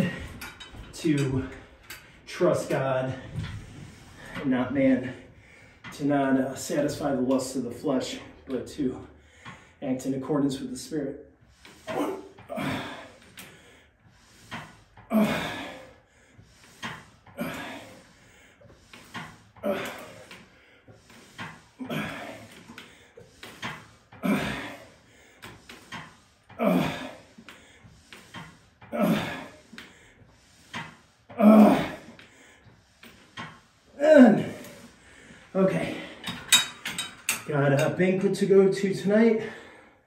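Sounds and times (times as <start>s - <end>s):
man breathing hard: 5.1s - 5.9s, 9.1s - 9.8s, 11.4s - 36.6s, 39.4s - 40.0s.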